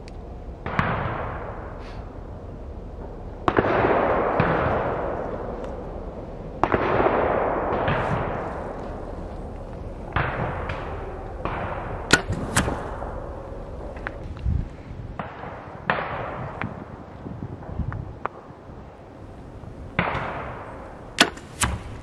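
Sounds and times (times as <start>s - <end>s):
distant echoing gunshots: 6.6s - 14.2s, 19.2s - 22.0s
arrow striking target: 7.8s - 14.2s, 19.3s - 22.0s
bow string release crack: 12.0s - 14.4s.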